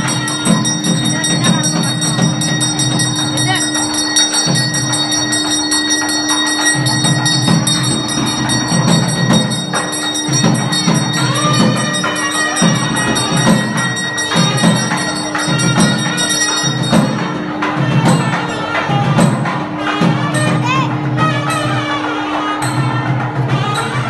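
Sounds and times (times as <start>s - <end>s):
held drone tone: 0.0s - 19.2s
bells jingling: 0.0s - 19.4s
steady drum beats: 0.0s - 24.0s.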